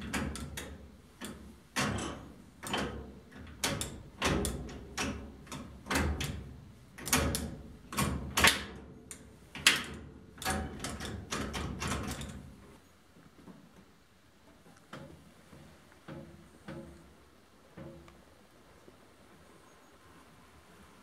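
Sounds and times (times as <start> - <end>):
sharp mechanical clunks and clicks: 0.0 - 12.6.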